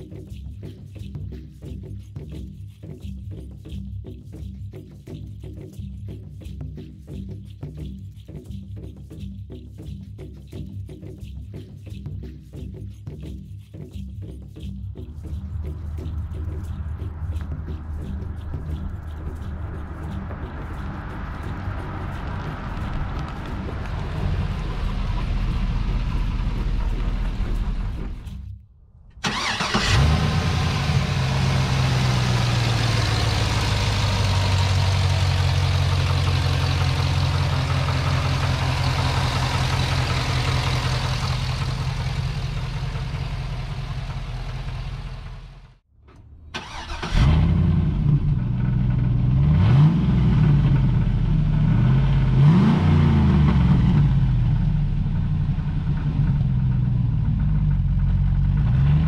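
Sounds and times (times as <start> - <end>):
car engine idling and revving: 15.1 - 59.0
car engine starting: 15.1 - 59.0.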